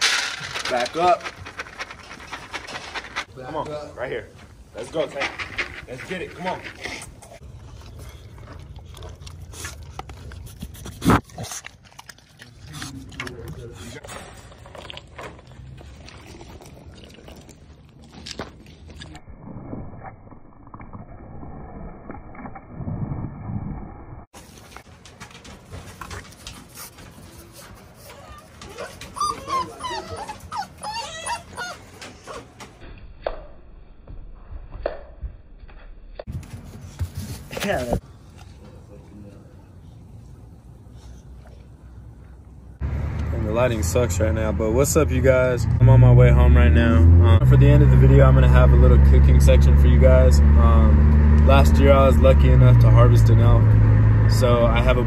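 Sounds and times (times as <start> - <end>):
puppies whining and squealing: 28.0 - 32.6
puppies yelping: 28.2 - 32.6.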